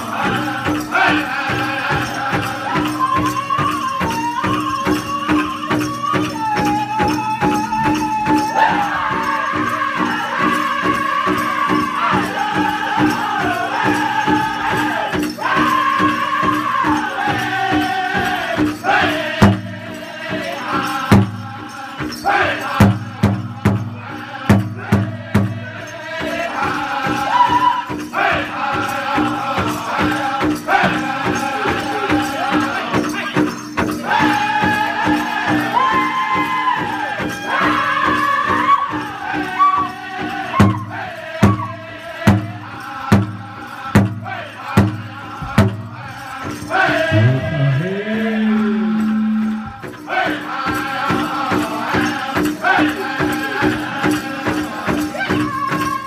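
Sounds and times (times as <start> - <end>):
group singing: 0.0 - 56.0
big drum beating: 6.6 - 56.0.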